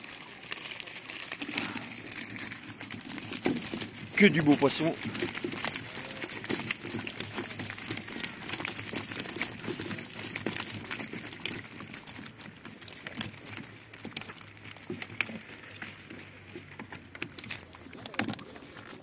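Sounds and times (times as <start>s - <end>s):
fish flapping in a net: 0.0s - 19.0s
net rustling: 0.0s - 19.0s
water dripping: 0.0s - 19.0s.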